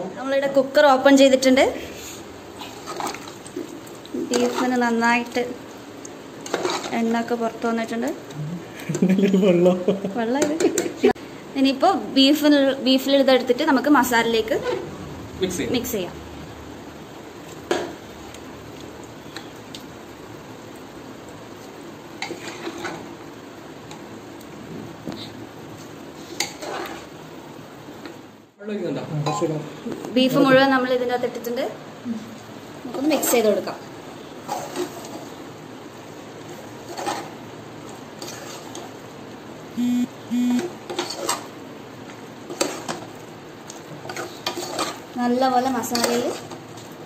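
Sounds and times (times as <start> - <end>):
steady low hiss: 0.0 - 47.0
ladle scraping in pot: 6.4 - 7.0, 14.5 - 14.9, 22.2 - 23.1, 26.2 - 27.1, 34.4 - 35.4, 36.8 - 37.4, 38.2 - 38.8, 42.5 - 43.0, 44.0 - 45.0
buzzing electronic beeps: 39.8 - 40.6.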